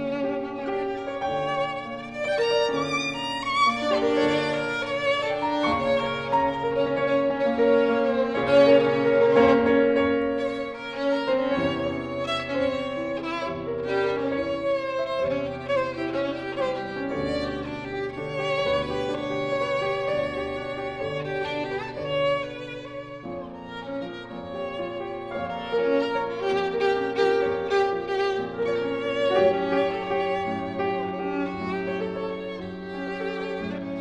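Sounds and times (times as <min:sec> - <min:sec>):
piano notes: 0:00.0 - 0:34.0
violin bowed notes with vibrato: 0:00.0 - 0:34.0.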